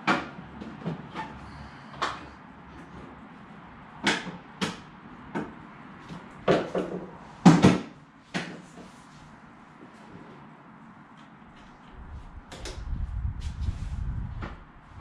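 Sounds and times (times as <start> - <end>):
scooter clunks and knocks: 0.0 - 3.1, 4.0 - 8.7.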